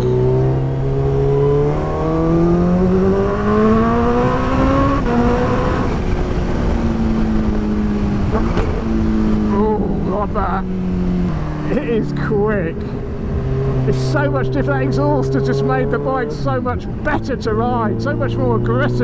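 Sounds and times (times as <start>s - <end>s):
wind noise: 0.0s - 11.6s
motorcycle engine accelerating: 0.0s - 19.0s.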